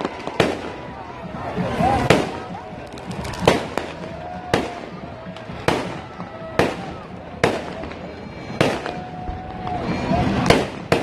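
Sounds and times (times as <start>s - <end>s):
fireworks bursting: 0.0s - 11.0s.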